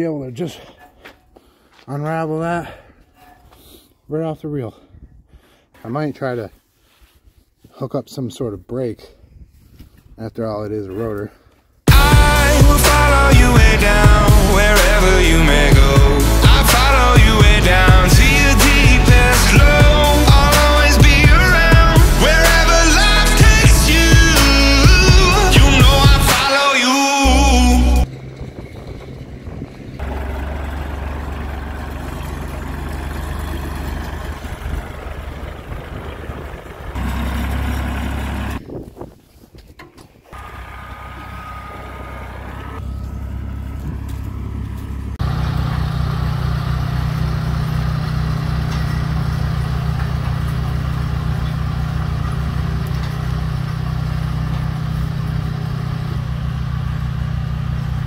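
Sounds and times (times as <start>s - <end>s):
outdoor noise: 0.0s - 58.0s
small tractor engine running: 28.1s - 38.6s, 40.3s - 58.0s.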